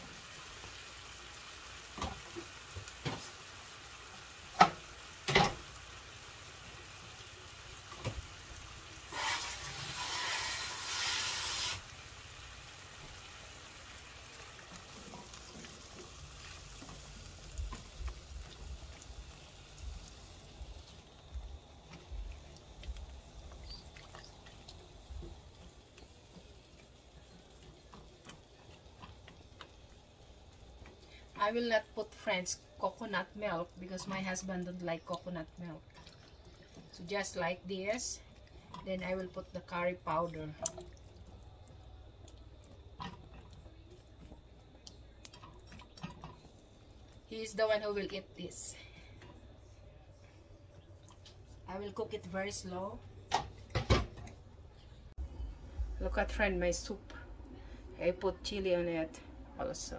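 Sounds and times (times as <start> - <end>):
loud frying hiss: 0.0 - 22.3
food frying in a pan: 0.0 - 48.8.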